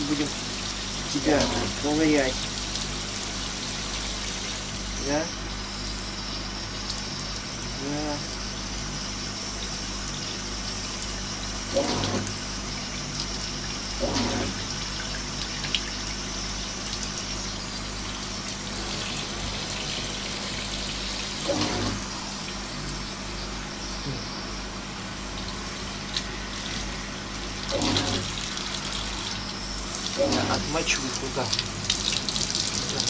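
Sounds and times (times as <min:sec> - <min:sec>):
shower water spraying and splashing: 0:00.0 - 0:22.9, 0:25.2 - 0:33.0.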